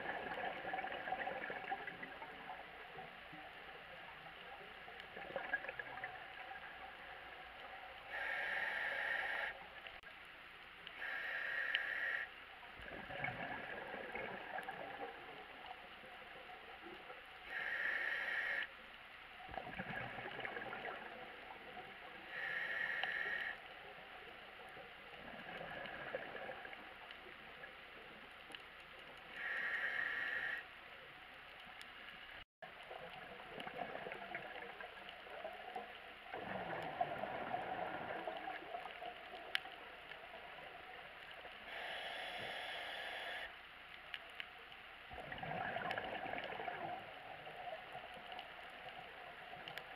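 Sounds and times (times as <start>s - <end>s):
hissing regulator inhalations: 8.1s - 9.6s, 11.0s - 12.3s, 17.5s - 18.7s, 22.3s - 23.6s, 29.3s - 30.6s, 41.6s - 43.6s
bubbling exhaled air: 12.8s - 15.1s, 25.2s - 26.8s, 36.3s - 39.0s, 45.1s - 47.5s.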